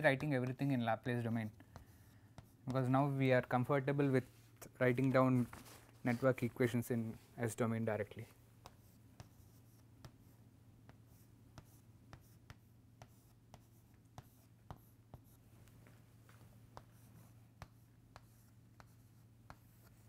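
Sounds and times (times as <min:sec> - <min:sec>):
chalk tapping and scratching: 0:00.0 - 0:03.3, 0:08.2 - 0:20.0.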